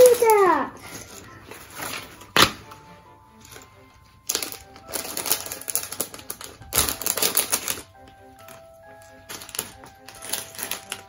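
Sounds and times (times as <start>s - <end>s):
plastic bag crinkling: 3.4s - 11.0s
plastic bricks rattling: 4.3s - 11.0s.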